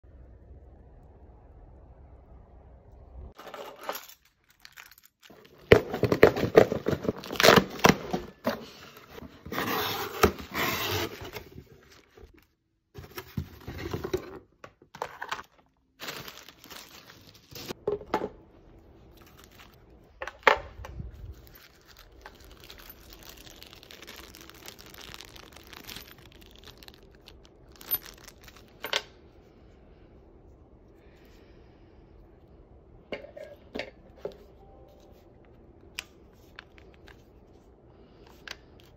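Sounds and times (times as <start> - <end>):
plastic packaging crinkling and tearing: 3.4 - 8.4, 15.0 - 17.8, 21.0 - 28.8.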